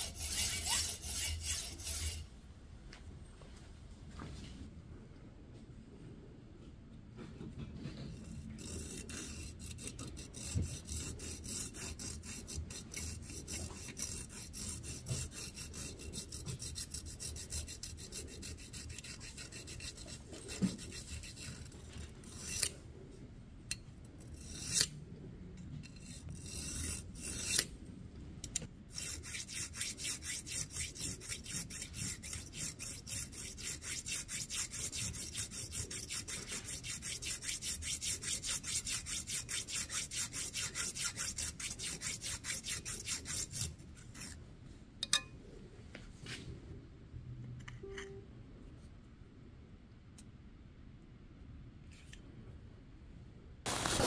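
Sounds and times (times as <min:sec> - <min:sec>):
file scraping steel bolt: 0:08.0 - 0:22.8, 0:24.2 - 0:25.0, 0:25.8 - 0:27.7, 0:28.5 - 0:44.4.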